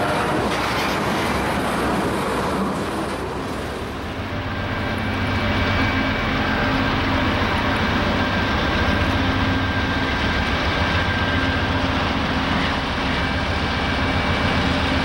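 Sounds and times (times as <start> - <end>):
diesel locomotive drone: 0.0 - 15.0
train wheels rumbling and clattering: 0.0 - 15.0.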